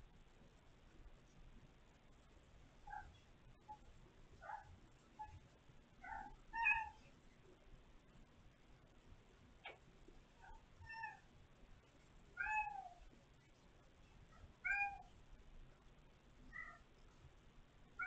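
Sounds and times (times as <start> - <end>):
kitten meowing: 6.1 - 7.0, 12.4 - 12.9, 14.6 - 15.0.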